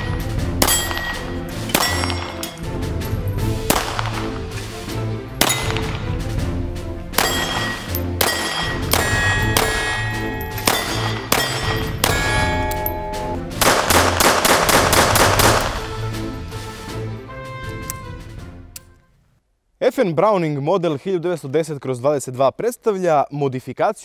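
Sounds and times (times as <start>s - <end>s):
steel target clanging: 0.0s - 2.7s, 5.4s - 6.0s, 7.1s - 14.2s
background music with bass line: 0.0s - 19.0s
pistol shots: 0.6s - 2.6s, 3.6s - 4.5s, 5.4s - 6.2s, 7.1s - 12.9s, 13.6s - 16.0s.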